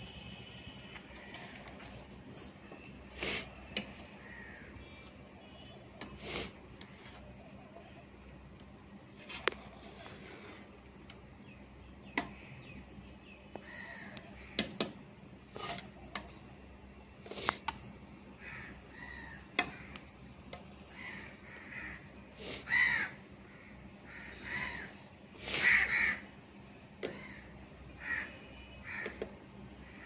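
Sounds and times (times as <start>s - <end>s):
crows cawing: 4.2s - 4.8s, 13.5s - 14.7s, 18.4s - 20.0s, 20.9s - 26.3s, 27.0s - 30.0s.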